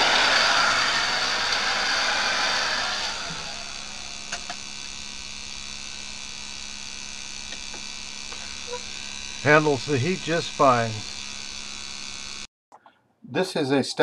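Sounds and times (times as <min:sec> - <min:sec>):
loud hiss: 0:00.0 - 0:04.4
electrical hum: 0:00.0 - 0:12.5.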